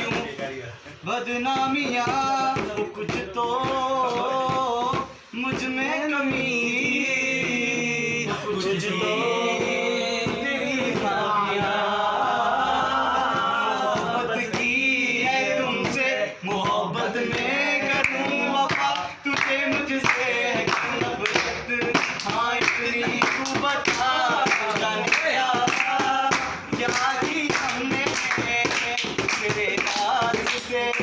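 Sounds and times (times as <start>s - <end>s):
men singing unaccompanied: 0.0s - 31.0s
hand claps: 13.3s - 31.0s.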